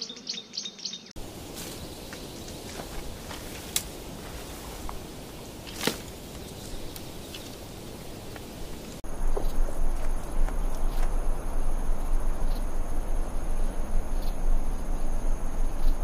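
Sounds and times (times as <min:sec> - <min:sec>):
insects chirping: 0:00.0 - 0:16.0
twigs snapping underfoot: 0:01.6 - 0:07.6
low rumble: 0:07.8 - 0:16.0.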